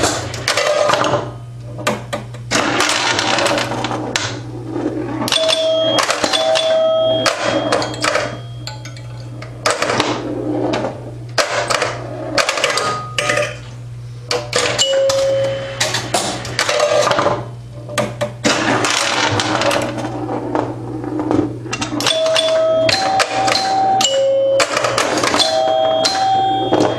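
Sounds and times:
pinball machine clattering: 0:00.0 - 0:13.7, 0:14.3 - 0:26.9
steady low hum: 0:00.0 - 0:26.9
score chimes ringing: 0:05.3 - 0:09.2, 0:14.8 - 0:15.8, 0:22.0 - 0:26.9.

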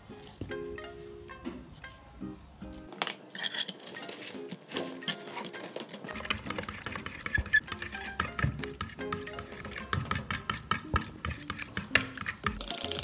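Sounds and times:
background music: 0:00.0 - 0:13.0
spoon scraping and clinking bowl: 0:03.3 - 0:04.3, 0:05.0 - 0:13.0.

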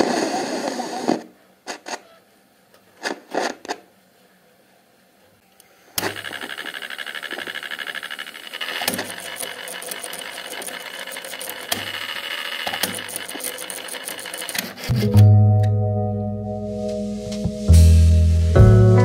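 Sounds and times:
loud mechanical clicks: 0:06.0 - 0:14.9
tape motor whirring: 0:06.0 - 0:14.9.

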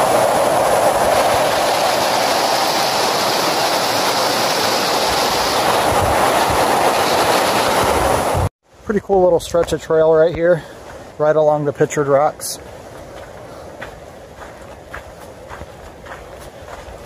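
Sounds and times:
water rushing over rock ledge: 0:00.0 - 0:08.5.

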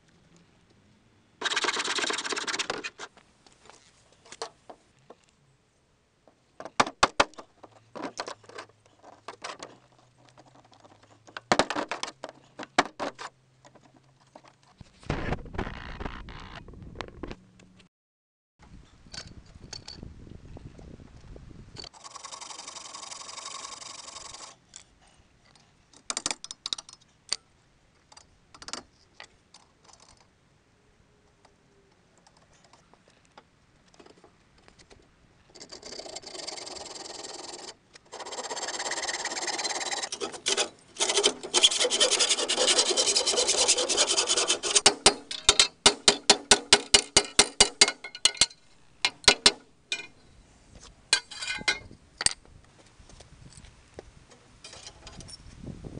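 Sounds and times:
hacksaw cutting steel: 0:35.6 - 0:50.1.

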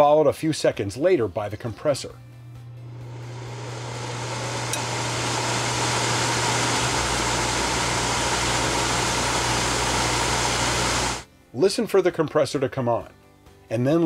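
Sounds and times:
air conditioner blower fan rushing: 0:02.8 - 0:11.2.

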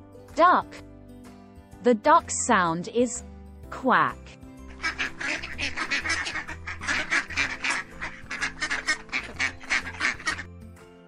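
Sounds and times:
light background music: 0:00.0 - 0:11.0
ducks quacking: 0:04.7 - 0:10.5.

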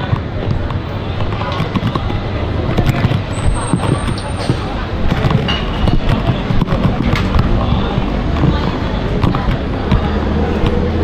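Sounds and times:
background voices: 0:00.0 - 0:11.0
footsteps on tiled stairs: 0:00.0 - 0:11.0
low traffic rumble: 0:00.0 - 0:11.0.

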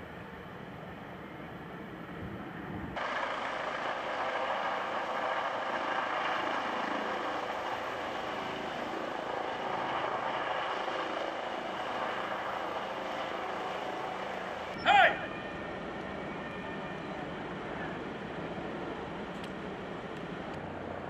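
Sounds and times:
helicopter hovering: 0:02.1 - 0:21.0.

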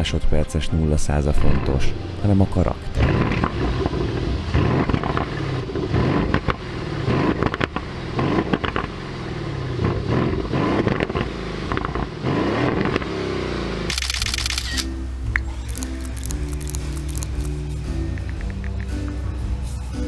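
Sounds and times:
car engine revving: 0:02.9 - 0:14.6.

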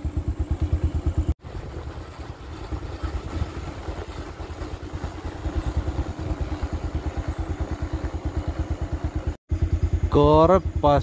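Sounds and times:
motorcycle engine ticking over: 0:00.0 - 0:01.3, 0:03.9 - 0:11.0.

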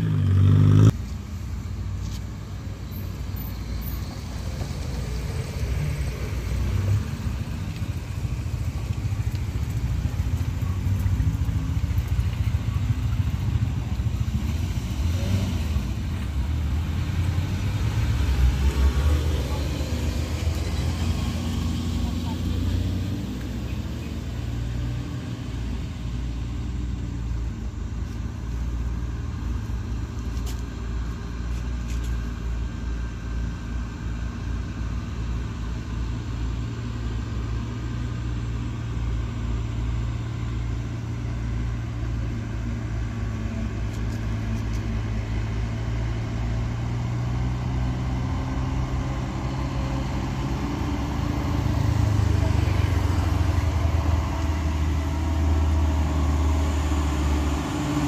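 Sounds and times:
diesel truck engine drone: 0:00.0 - 0:58.0.

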